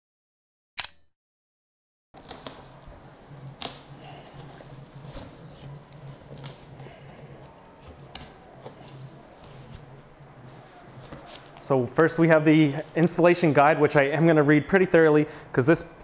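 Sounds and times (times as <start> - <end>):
cardboard and foam rustling: 2.2 - 12.1
low steady hum: 2.2 - 16.0.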